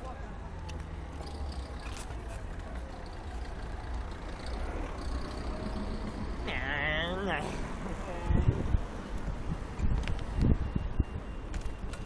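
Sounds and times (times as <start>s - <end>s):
wind and road noise: 0.0s - 12.0s
large vehicle passing: 0.8s - 9.7s.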